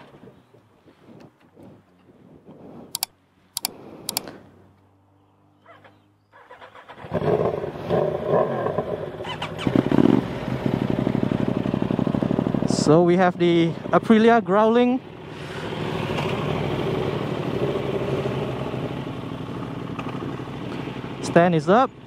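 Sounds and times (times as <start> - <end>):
sharp clicks: 2.9 - 4.3
motorcycle engine idling: 9.1 - 22.0.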